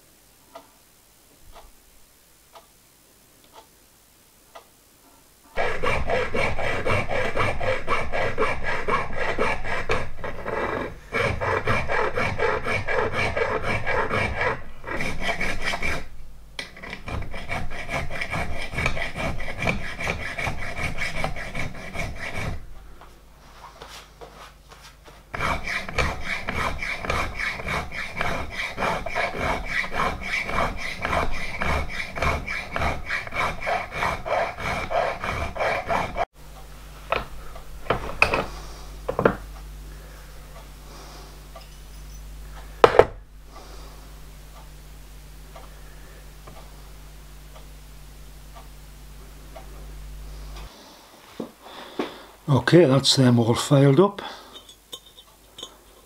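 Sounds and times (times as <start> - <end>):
file rasping on metal: 5.6 - 22.7, 25.3 - 36.3.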